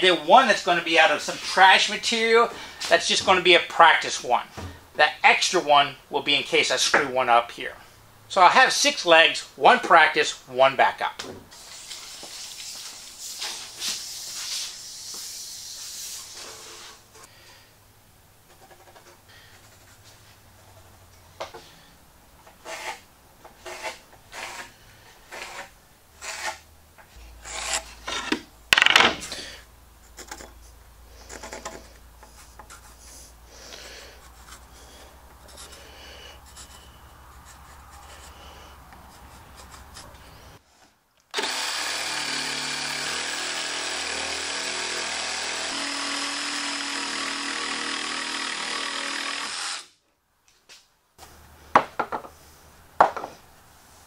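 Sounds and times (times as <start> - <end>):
scratching and tapping strokes: 33.8 - 40.2
jigsaw cutting wood: 41.4 - 49.9.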